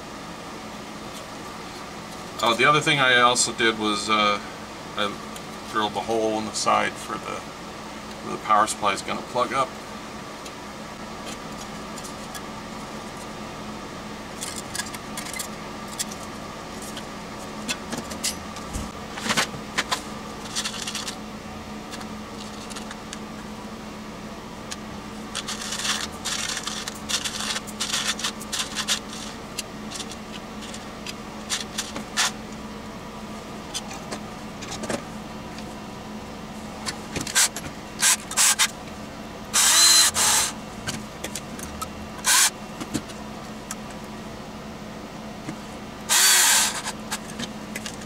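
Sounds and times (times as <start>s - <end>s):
steady background hum: 0.0s - 48.0s
metal parts clicking and rattling: 25.3s - 30.8s.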